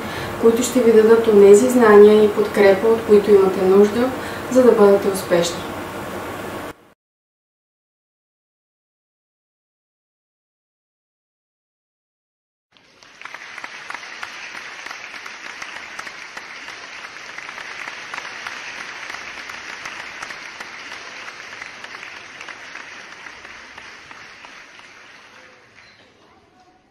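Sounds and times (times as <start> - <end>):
audience applauding: 12.8 - 26.5.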